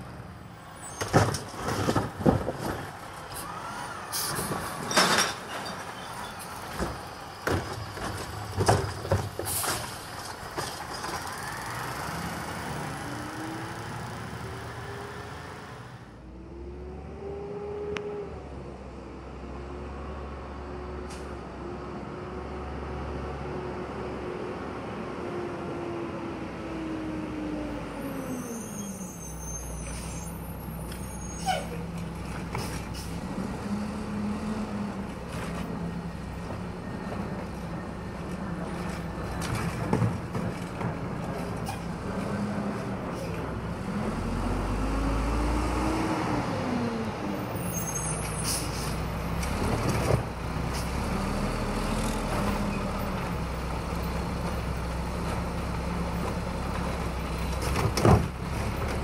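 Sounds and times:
diesel engine revving: 11.3s - 28.7s, 31.8s - 40.0s, 41.0s - 59.0s.

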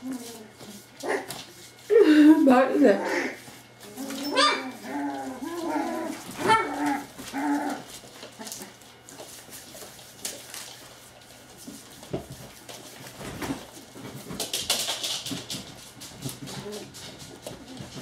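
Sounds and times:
puppies whimpering and yapping: 2.8s - 7.9s
puppy yelp: 4.0s - 7.8s.

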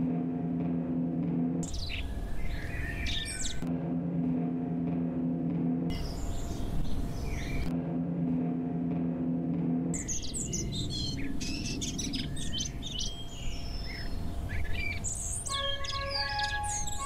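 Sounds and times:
low steady rumble: 0.0s - 3.0s, 3.6s - 17.0s
birds chirping and singing: 1.6s - 3.7s, 5.9s - 7.7s, 10.0s - 17.0s
music with held notes: 15.1s - 17.0s.

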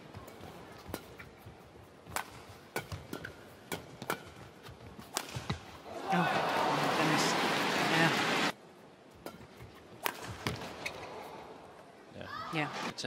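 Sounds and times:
low arena background: 0.0s - 13.0s
rackets hitting shuttlecock: 0.1s - 6.3s, 9.2s - 11.1s.

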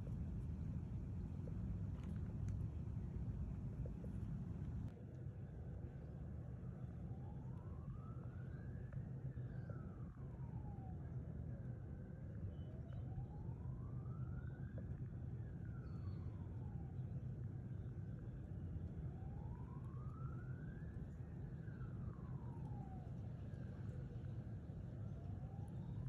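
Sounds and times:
steady low rumble: 0.0s - 6.6s
distant siren wailing: 7.1s - 17.4s, 19.0s - 26.0s.

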